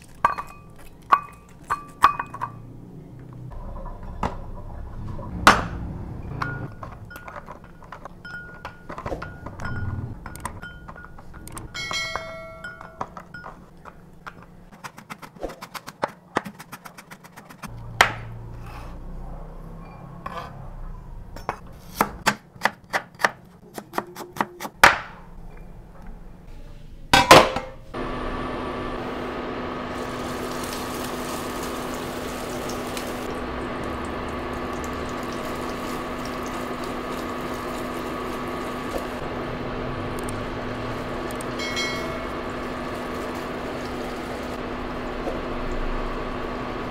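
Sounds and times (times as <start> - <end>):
cooker cooling fan humming: 27.2 - 46.9.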